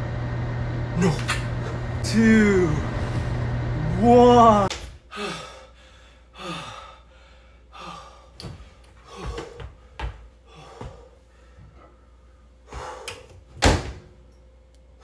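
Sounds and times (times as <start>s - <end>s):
heavy breathing and gasps: 5.1s - 9.9s.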